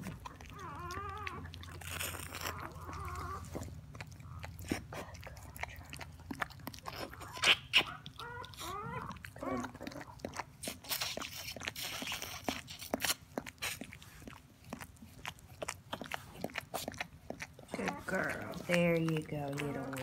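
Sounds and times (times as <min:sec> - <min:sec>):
dog licking wetly: 0:00.0 - 0:20.0
puppy squeaky cries: 0:07.1 - 0:09.7.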